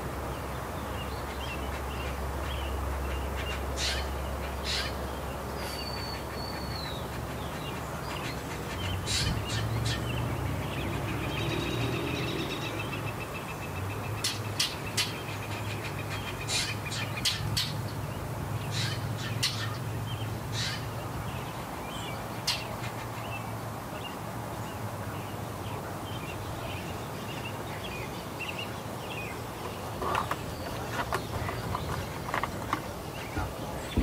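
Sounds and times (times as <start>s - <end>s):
jays calling: 1.2s - 11.8s, 13.8s - 17.9s, 18.6s - 21.0s.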